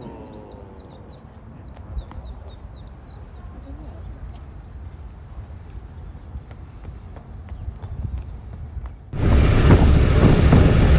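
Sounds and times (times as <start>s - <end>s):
steady low rumble: 8.1s - 10.9s.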